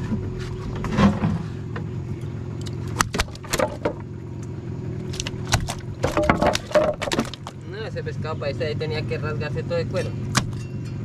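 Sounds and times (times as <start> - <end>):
outboard motor running: 0.0 - 11.0
sharp knocks and rattles: 3.0 - 4.1, 5.1 - 7.6.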